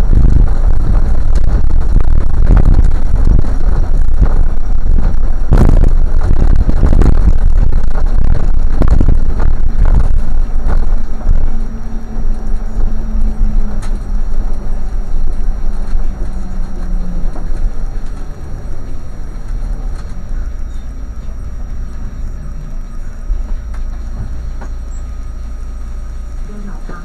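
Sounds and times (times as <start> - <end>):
low hum: 0.0 - 27.0
vehicle engine rumble: 0.0 - 27.0.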